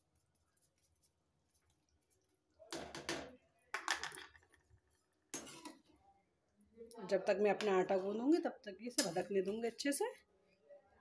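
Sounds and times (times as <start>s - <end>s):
metal ladle scraping a pan: 5.4s - 5.8s.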